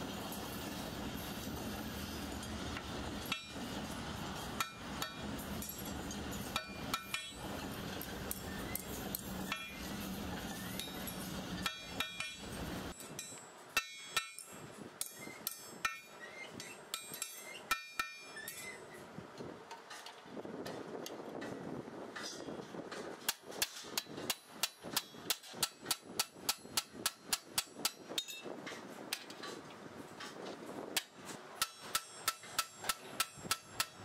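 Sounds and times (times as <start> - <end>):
metal clinking on metal: 4.6 - 19.0, 23.9 - 28.6.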